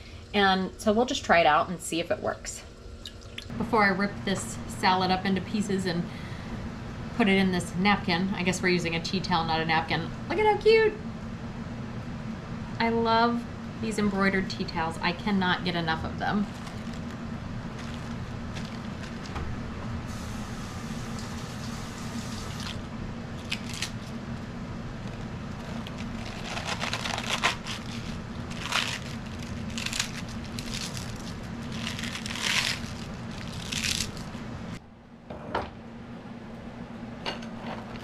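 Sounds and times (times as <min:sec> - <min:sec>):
steady low hum: 0:00.0 - 0:38.0
lettuce being torn by hand: 0:23.4 - 0:24.2, 0:25.1 - 0:34.4.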